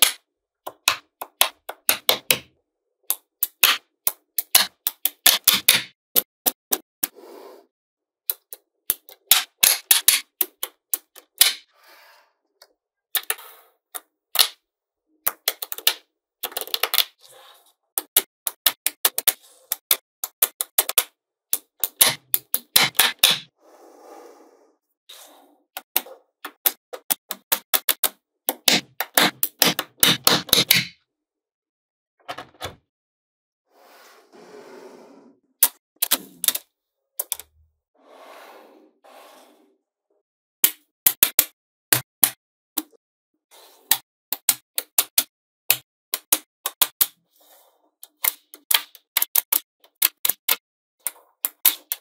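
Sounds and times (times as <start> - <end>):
magnetic balls clicking together: 18.0 - 23.5, 25.8 - 30.9, 48.0 - 52.0.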